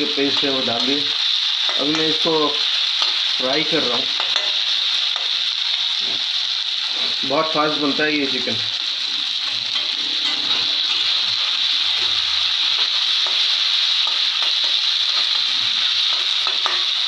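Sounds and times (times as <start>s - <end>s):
onions sizzling in hot oil: 0.0s - 17.0s
metal spatula scraping: 8.8s - 17.0s.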